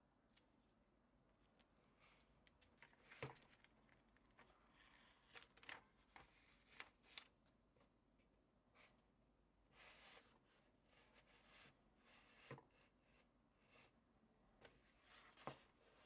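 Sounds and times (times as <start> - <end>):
paper rustling: 2.0 - 7.3.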